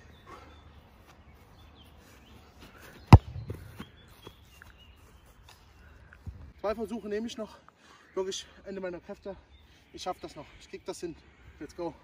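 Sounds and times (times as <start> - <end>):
football kick thump: 3.1 - 3.9
soft thuds: 3.1 - 3.9.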